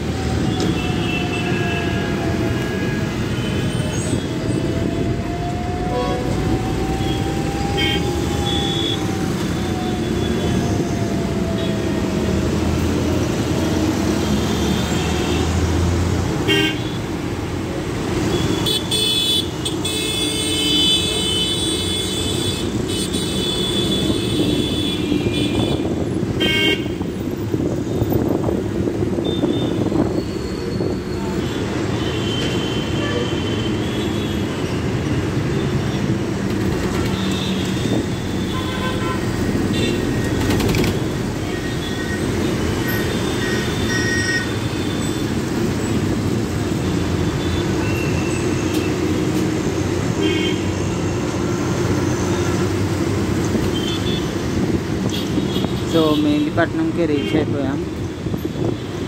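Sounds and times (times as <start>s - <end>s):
bus engine and road rumble: 0.0s - 59.0s
vehicle horns honking: 18.3s - 27.1s, 31.9s - 34.5s, 37.1s - 40.2s, 50.2s - 50.8s.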